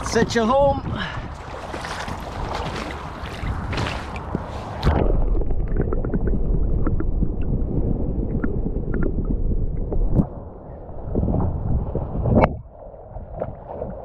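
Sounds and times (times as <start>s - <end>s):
wind: 0.0s - 14.0s
muffled underwater river rumble: 0.8s - 14.0s
splashing water: 1.1s - 7.2s
sharp water splash: 1.4s - 5.4s.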